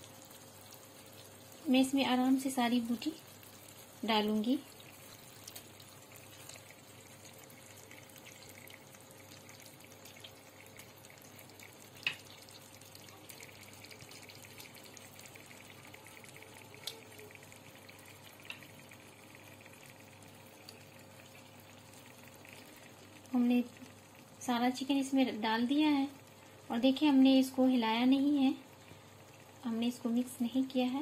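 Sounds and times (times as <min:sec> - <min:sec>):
masala sizzling in a pan: 0:00.0 - 0:31.0.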